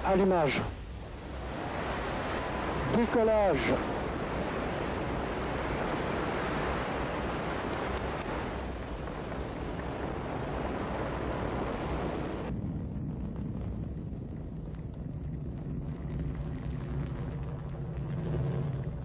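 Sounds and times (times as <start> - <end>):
rocket engines rumbling: 0.0 - 19.0.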